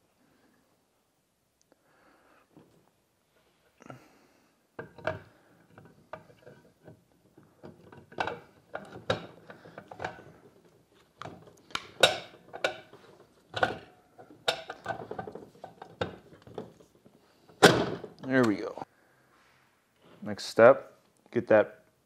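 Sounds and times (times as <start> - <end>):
metal clunks and scraping: 4.8 - 18.7.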